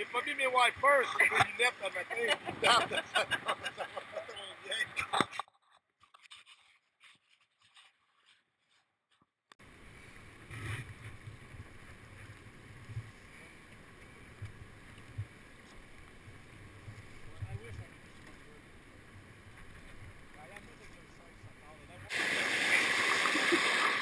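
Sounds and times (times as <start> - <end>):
water around a raft: 9.6 - 24.0.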